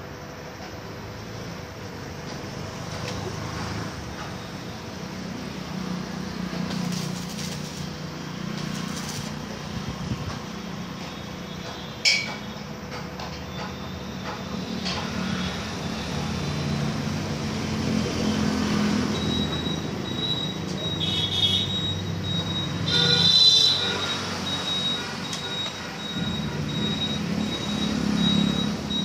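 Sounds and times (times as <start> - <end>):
steady low hum: 3.3 - 11.1.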